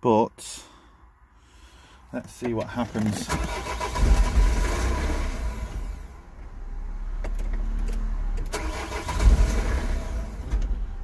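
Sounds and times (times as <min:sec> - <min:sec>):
engine starting and stalling: 0:02.6 - 0:06.1, 0:07.2 - 0:10.9
starter cranking diesel engine: 0:02.7 - 0:06.0, 0:08.4 - 0:10.6.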